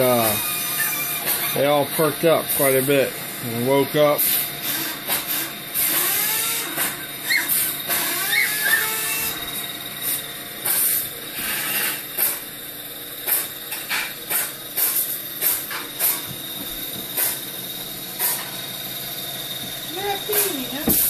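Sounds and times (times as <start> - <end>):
puppies squeaking: 0.4 - 1.6, 7.2 - 9.4.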